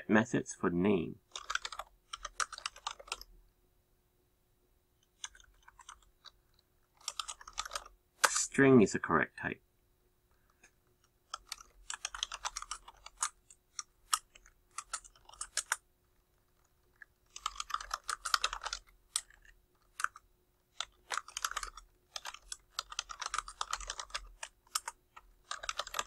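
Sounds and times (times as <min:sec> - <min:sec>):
typing on computer keyboard: 0:01.3 - 0:03.3, 0:05.0 - 0:07.9, 0:11.2 - 0:15.8, 0:16.5 - 0:26.0.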